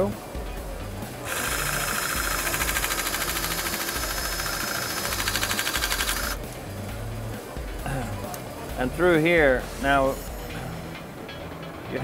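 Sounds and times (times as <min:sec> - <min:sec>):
rivet gun pulsing whir: 0:01.2 - 0:06.4.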